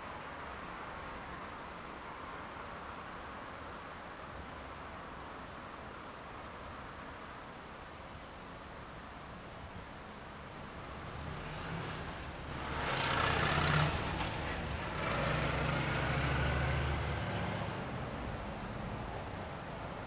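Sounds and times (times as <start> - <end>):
tyre and road noise: 10.4 - 20.0
vehicle engine hum passing: 10.5 - 20.0.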